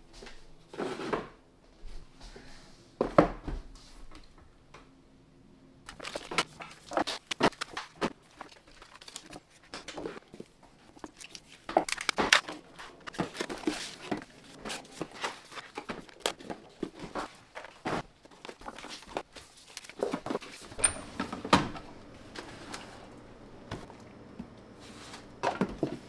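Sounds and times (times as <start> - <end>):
cardboard rustling and scraping: 11.6 - 21.4.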